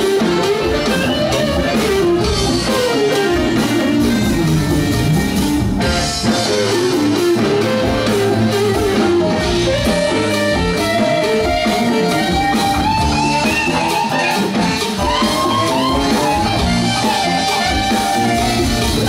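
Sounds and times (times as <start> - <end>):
lead electric guitar: 0.0 - 19.0
live funk band playing: 0.0 - 19.0.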